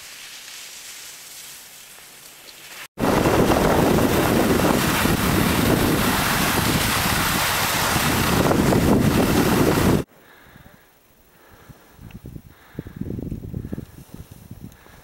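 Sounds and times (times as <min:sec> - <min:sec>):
skis scraping on snow: 0:00.0 - 0:10.1
wind buffeting microphone: 0:03.0 - 0:10.8, 0:11.4 - 0:15.0.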